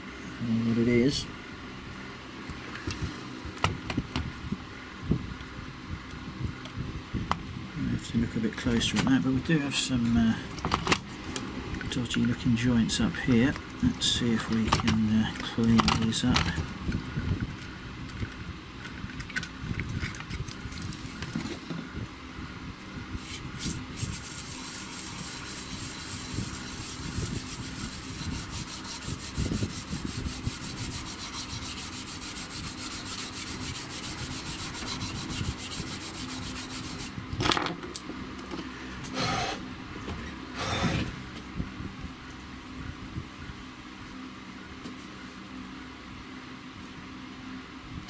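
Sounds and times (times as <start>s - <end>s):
brush scrubbing circuit board: 23.2s - 37.1s.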